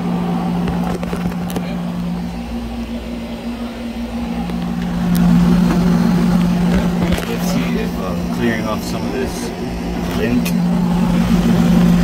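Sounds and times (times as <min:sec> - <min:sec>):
refrigerator unit humming: 0:00.0 - 0:12.0.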